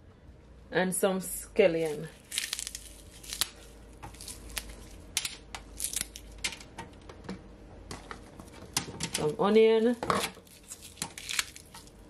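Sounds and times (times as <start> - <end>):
scallion stalks snapping: 2.2 - 6.4, 10.2 - 11.9.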